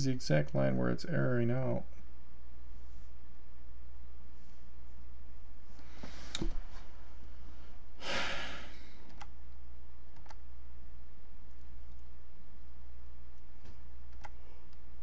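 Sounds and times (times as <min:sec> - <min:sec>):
steady low hum: 0:00.0 - 0:15.0
person sighing: 0:08.0 - 0:09.1.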